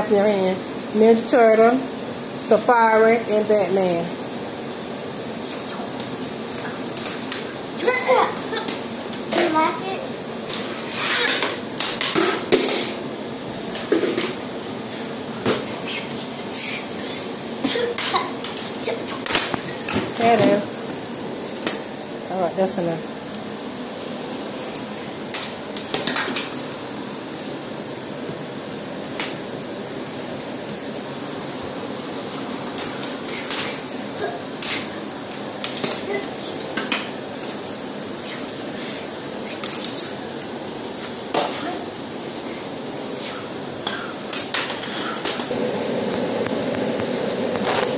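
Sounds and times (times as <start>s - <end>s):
steady background hiss: 0.0s - 47.9s.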